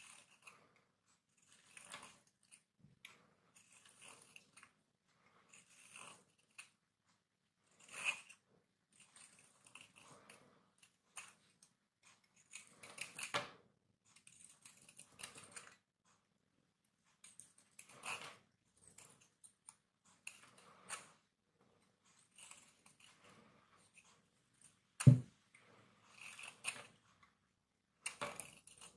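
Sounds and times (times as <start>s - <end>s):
knife scraping hard soap: 0.0s - 6.8s, 7.6s - 13.4s, 14.2s - 15.8s, 17.2s - 21.2s, 22.1s - 24.0s, 25.0s - 27.0s, 28.0s - 28.9s.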